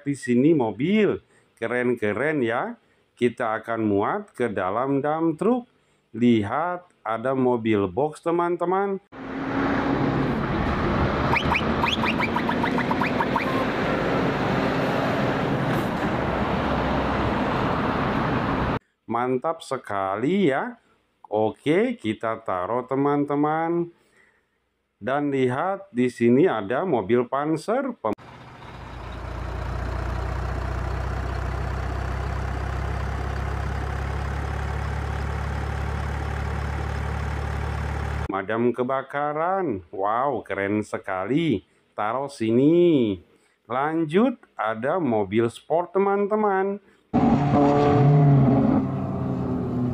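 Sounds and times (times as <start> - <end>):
road noise: 9.1 - 18.8, 28.2 - 38.3, 47.2 - 49.9
truck engine drone: 9.2 - 18.8, 28.2 - 38.3, 47.2 - 49.9
short rising chirps: 11.3 - 13.8.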